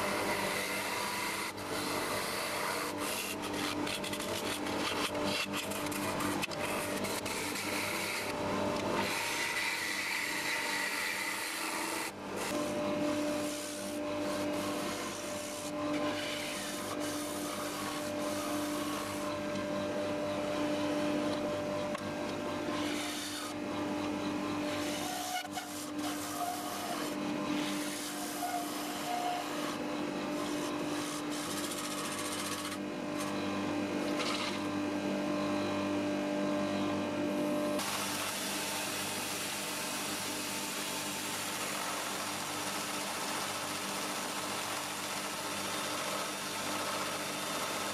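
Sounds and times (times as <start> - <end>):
wood lathe humming: 0.0 - 35.8, 36.6 - 47.9
gouge scraping wood: 0.2 - 8.3, 30.4 - 32.8.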